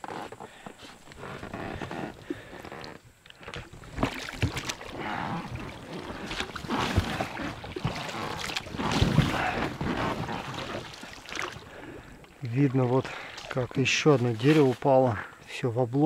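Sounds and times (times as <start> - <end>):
water splashing around hull: 0.1 - 15.0.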